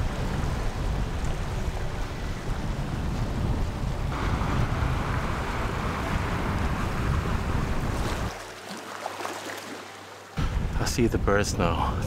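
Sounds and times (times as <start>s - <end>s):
wind rumble on microphone: 0.0s - 8.4s, 10.4s - 12.0s
sea surf washing against rocks: 4.1s - 11.0s.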